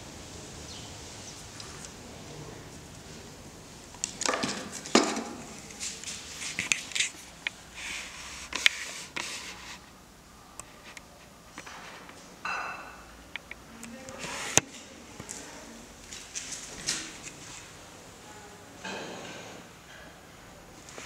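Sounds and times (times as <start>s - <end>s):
handling noise scratching: 3.9s - 10.0s.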